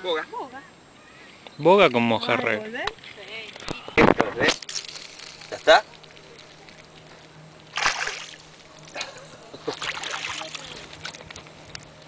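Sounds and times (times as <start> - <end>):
water splashing: 4.5 - 11.4.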